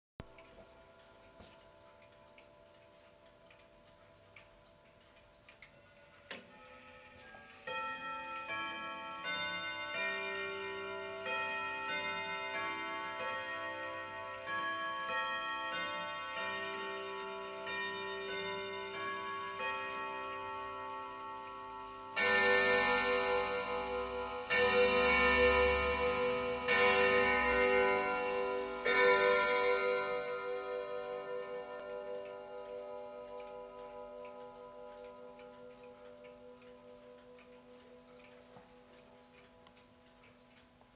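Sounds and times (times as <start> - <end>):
clock hour strikes: 0.2 - 40.9
clock ticking: 0.2 - 40.9
clock chime tune: 5.6 - 40.5.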